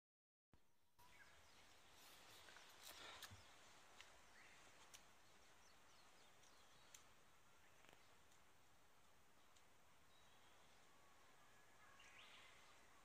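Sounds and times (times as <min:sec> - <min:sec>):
faint bird chirps: 0:01.0 - 0:08.4, 0:09.4 - 0:13.0
light clicks: 0:06.4 - 0:07.2.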